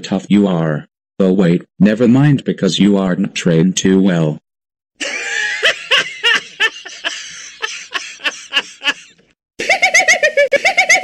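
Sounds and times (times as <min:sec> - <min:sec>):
man laughing mockingly: 0:05.0 - 0:11.0.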